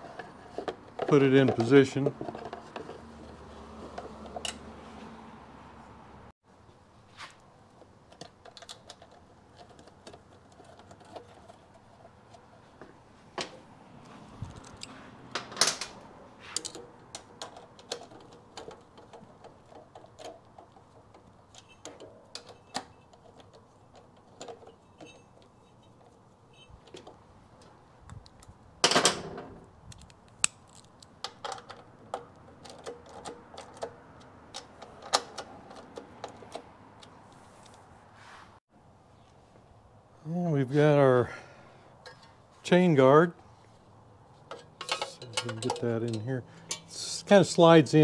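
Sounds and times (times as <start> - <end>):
motorcycle parts clicking and tapping: 0.2 - 4.7, 7.8 - 13.6, 14.5 - 37.8, 42.0 - 42.4, 44.3 - 47.1.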